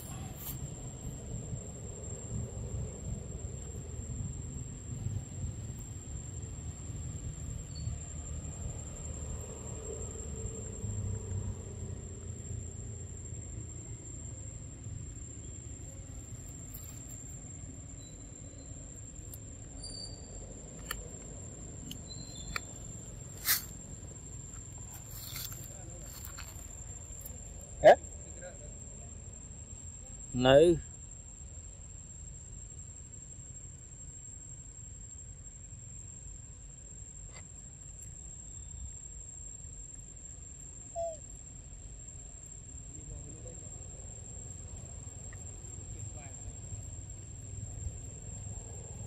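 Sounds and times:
low steady rumble: 0.0 - 29.9.

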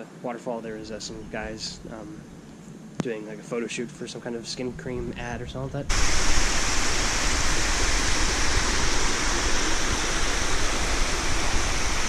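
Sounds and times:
waterfall rushing: 5.9 - 12.0.

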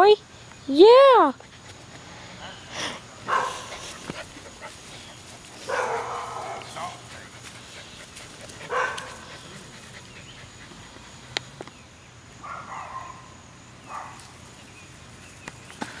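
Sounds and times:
puppy barking: 3.3 - 3.9, 5.6 - 7.1, 8.6 - 9.3, 12.4 - 13.3, 13.9 - 14.2.

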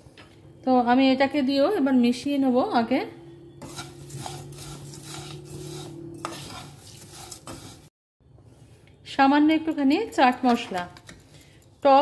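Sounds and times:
spoon stirring in metal pan: 3.5 - 7.9.

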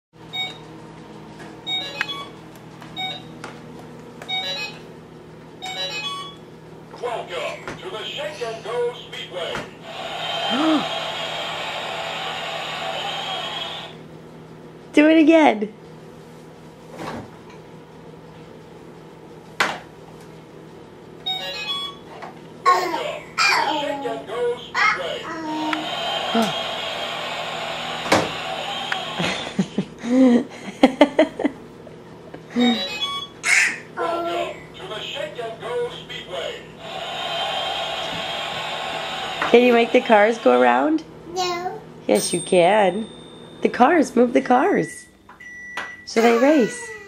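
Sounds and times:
steady low hum: 0.2 - 47.0
bright beeping toy tune: 4.3 - 4.8, 5.6 - 6.4, 21.3 - 22.0, 32.6 - 33.3
electronic toy jingle: 5.7 - 6.3, 21.3 - 21.9.

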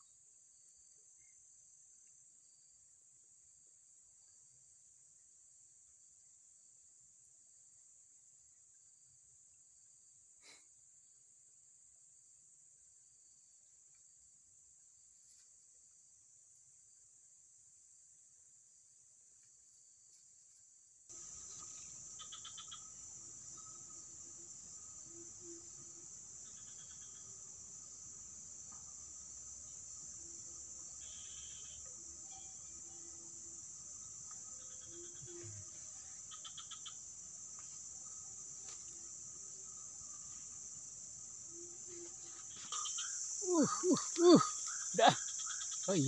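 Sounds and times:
high-pitched insect chorus: 18.7 - 46.0.

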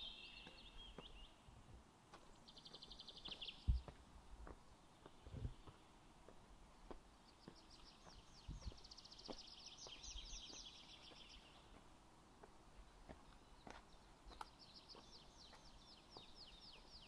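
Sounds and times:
bird singing a fast trill: 0.0 - 1.4
faint footsteps walking: 0.4 - 1.3, 2.0 - 17.0.

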